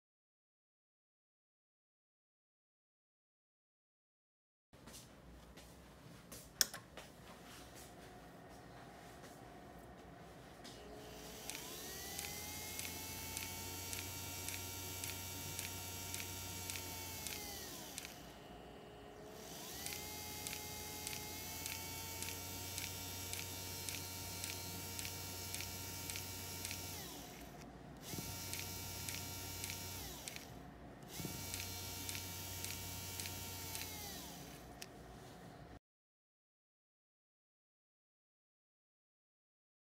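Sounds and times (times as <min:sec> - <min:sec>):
electric motor whine: 0:10.6 - 0:34.9
light regular ticking: 0:19.7 - 0:27.7.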